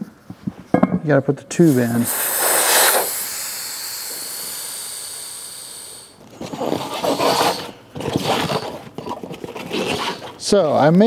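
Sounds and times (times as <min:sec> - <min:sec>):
air hissing from tube valve: 0:01.5 - 0:07.7
rubber rubbing and scraping: 0:06.4 - 0:10.4.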